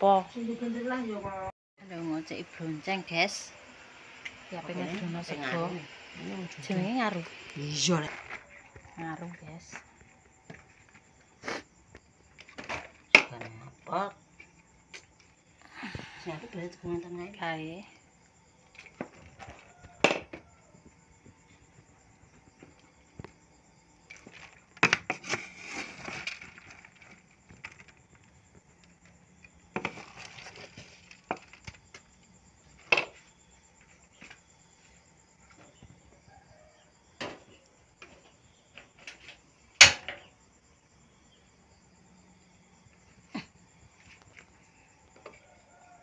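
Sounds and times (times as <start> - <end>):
faint insect chirring: 0.0 - 46.0.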